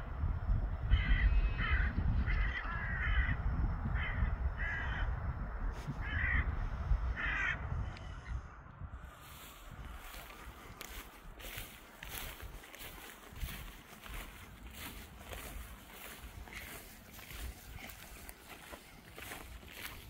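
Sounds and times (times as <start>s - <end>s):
crow cawing: 0.9s - 3.4s, 4.0s - 5.1s, 6.0s - 6.5s, 7.2s - 7.7s.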